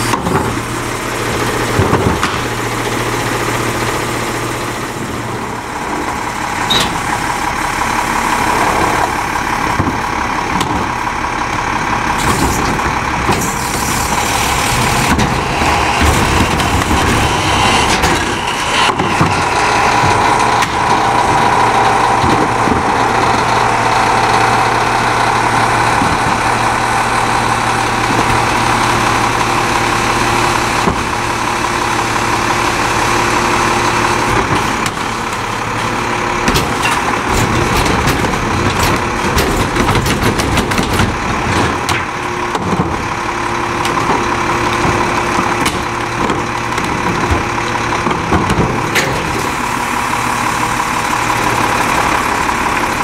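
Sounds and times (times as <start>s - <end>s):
garbage truck diesel engine: 0.0s - 53.0s
carts knocking and clattering: 1.6s - 2.6s, 14.7s - 23.4s, 34.2s - 49.6s
sustained whine: 12.2s - 39.4s.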